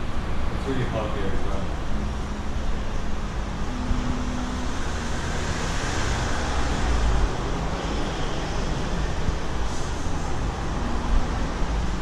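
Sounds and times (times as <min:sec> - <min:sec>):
passing cars rumbling: 0:00.0 - 0:12.0.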